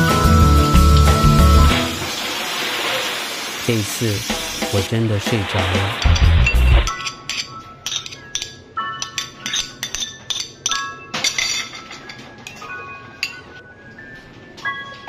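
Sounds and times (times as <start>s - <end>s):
light music with bell-like notes: 6.4s - 15.0s.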